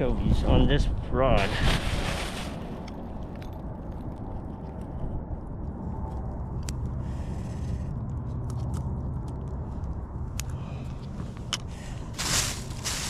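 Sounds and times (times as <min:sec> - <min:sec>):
wind on microphone: 0:00.0 - 0:08.3.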